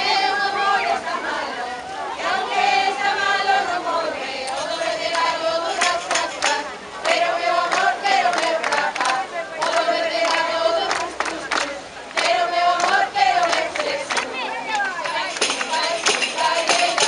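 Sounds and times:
high voices singing together: 0.0s - 17.0s.

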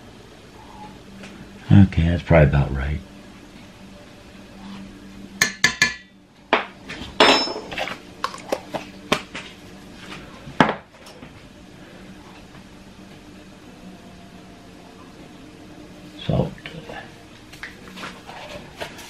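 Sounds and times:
metal spoon clinking on steel bowl: 5.4s - 6.1s
kitchen items set down: 6.9s - 8.4s.

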